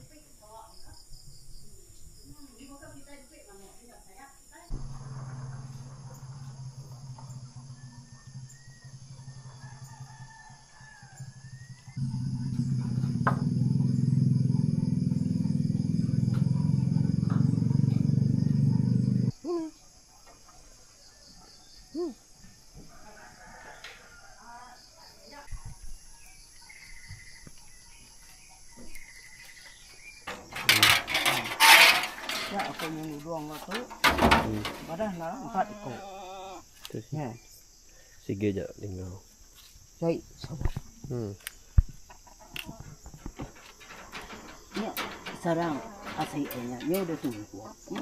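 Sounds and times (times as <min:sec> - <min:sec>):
insects droning: 0:00.0 - 0:48.0
faint bird chirps: 0:04.6 - 0:30.4
corrugated metal sheet clattering: 0:30.2 - 0:35.2, 0:43.2 - 0:48.0.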